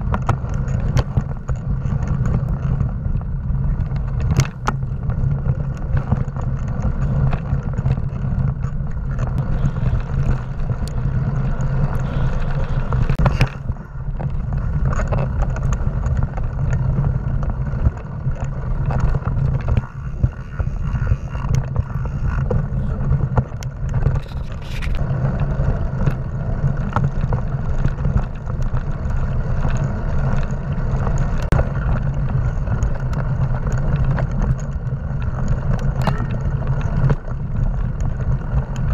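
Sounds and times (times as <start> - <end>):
bike rattling over bumps: 0.0 - 38.9
tyres rumbling on dirt: 0.0 - 38.9
wind: 0.0 - 38.9.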